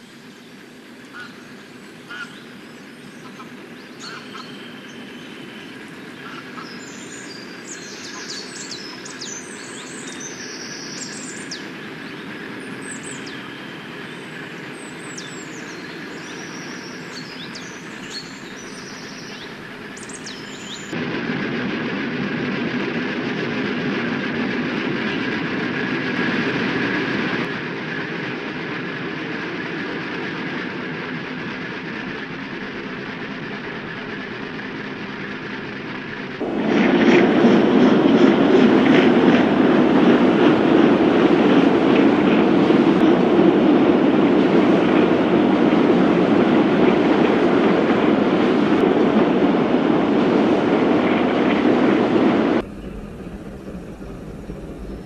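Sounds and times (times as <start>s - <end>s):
small birds chirping: 0.0s - 21.0s
barge diesel engine running: 52.2s - 55.0s.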